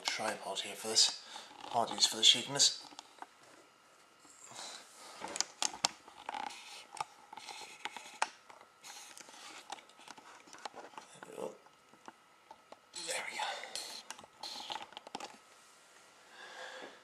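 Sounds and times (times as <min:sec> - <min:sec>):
faint high hum: 0:00.0 - 0:17.0
scratching and rustling: 0:05.0 - 0:11.4.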